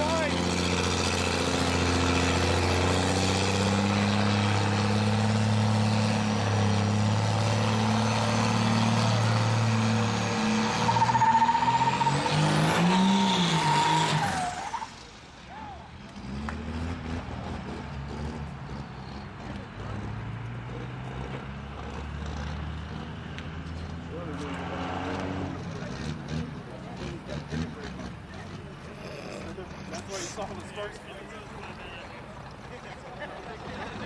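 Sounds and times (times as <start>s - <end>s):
diesel truck engine revving: 0.0s - 15.4s, 16.0s - 31.0s.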